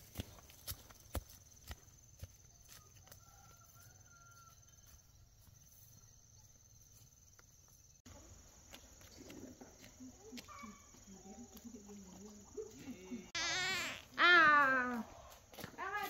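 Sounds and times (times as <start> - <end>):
footsteps on dirt path: 0.0 - 16.0
thin high buzz: 13.4 - 14.1.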